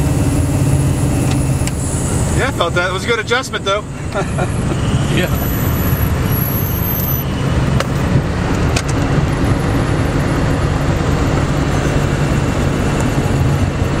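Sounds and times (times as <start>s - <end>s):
plane engine droning: 0.0s - 14.0s.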